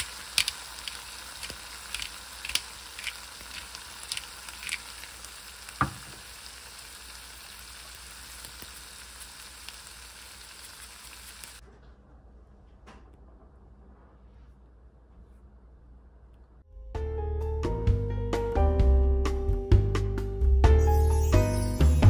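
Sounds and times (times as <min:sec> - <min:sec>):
food sizzling in a pan: 0:00.0 - 0:11.6
quiet hum: 0:11.6 - 0:16.7.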